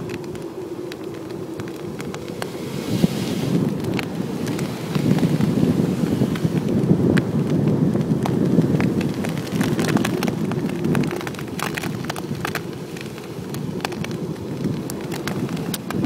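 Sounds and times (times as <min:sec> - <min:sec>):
shells crunching under wheels: 0:00.0 - 0:02.6
tyres rolling over sand: 0:00.0 - 0:16.0.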